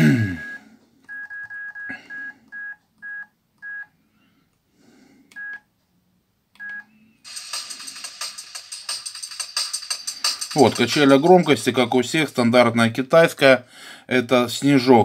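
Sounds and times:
phone key-press beeps: 0.4s - 3.8s, 5.4s - 5.7s, 6.6s - 6.9s
drum and bass from phone speaker: 7.3s - 12.0s.

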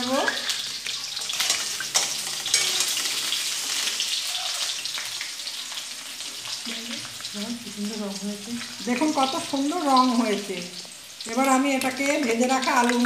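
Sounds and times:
food sizzling in oil: 0.0s - 13.0s
spoon stirring in steel bowl: 1.3s - 3.3s.

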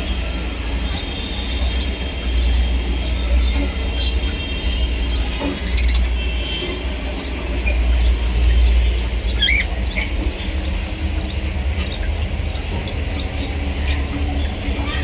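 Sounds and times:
budgerigar chirps: 5.4s - 6.2s.

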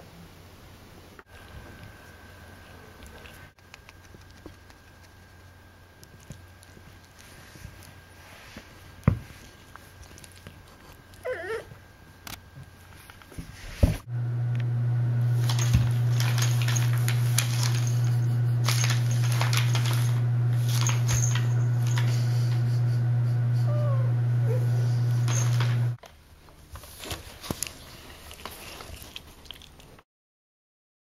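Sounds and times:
steady low hum: 1.1s - 26.0s
paper bag crackling: 15.3s - 22.2s.

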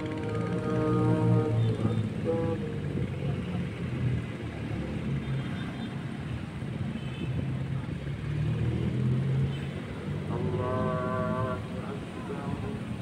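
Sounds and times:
harbour noise: 0.0s - 13.0s.

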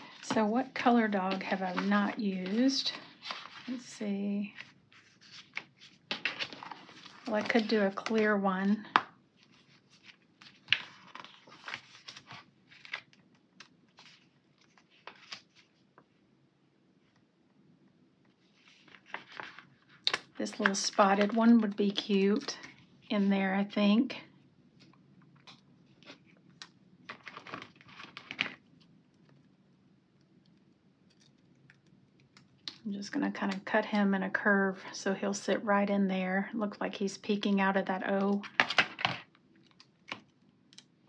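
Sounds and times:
paper pages rustling: 0.0s - 15.8s, 18.3s - 23.4s, 24.8s - 28.6s.

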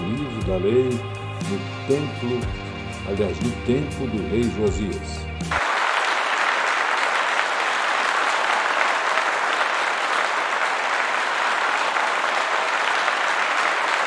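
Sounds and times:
large audience applauding: 5.5s - 14.0s.

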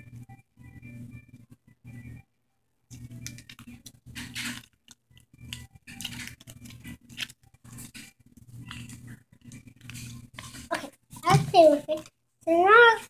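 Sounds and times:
plastic packet crinkling: 2.9s - 12.1s.

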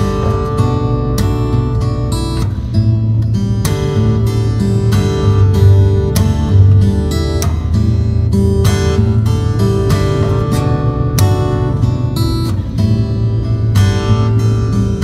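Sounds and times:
strummed acoustic guitar: 0.0s - 15.0s
bass line: 3.3s - 15.0s.

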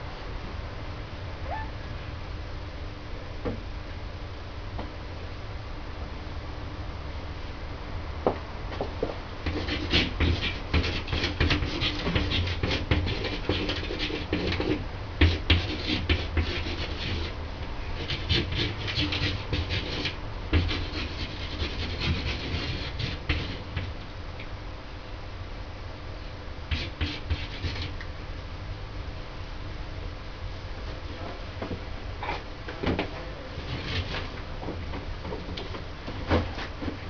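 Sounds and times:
marker pen scratching on wall: 9.4s - 17.4s, 18.0s - 23.9s, 26.7s - 28.0s.

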